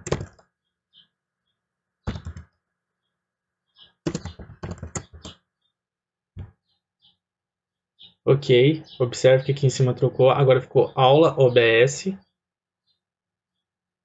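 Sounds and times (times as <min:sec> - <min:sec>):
computer keyboard typing: 0:00.0 - 0:00.4, 0:02.1 - 0:02.5, 0:04.0 - 0:05.4.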